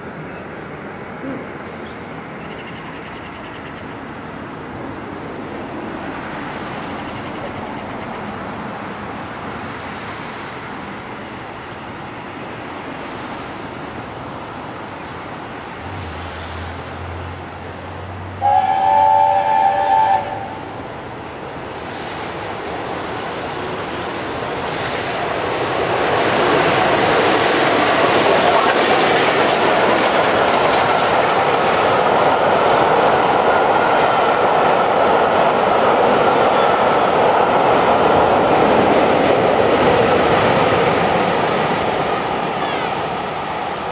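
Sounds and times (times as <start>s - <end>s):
steam train rumbling: 4.8s - 43.9s
steam locomotive chime whistle: 18.4s - 21.0s.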